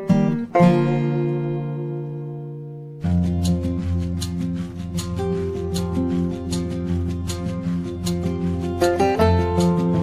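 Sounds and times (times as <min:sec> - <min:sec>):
music with sustained notes and beat: 0:00.0 - 0:10.0.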